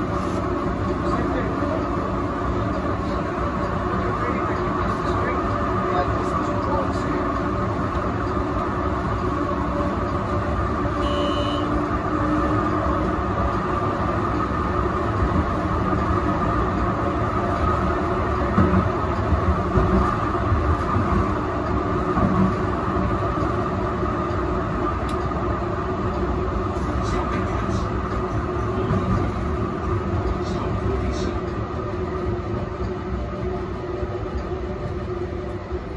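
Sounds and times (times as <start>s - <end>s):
tram bumps: 0.0s - 35.9s
tram wheels rumbling on rails: 0.0s - 35.9s.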